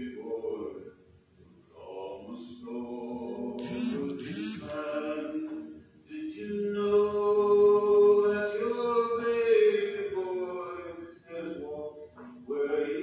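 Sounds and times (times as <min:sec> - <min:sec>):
man singing into a microphone: 0:01.8 - 0:03.7, 0:04.7 - 0:13.0
brief hiss: 0:03.6 - 0:04.8.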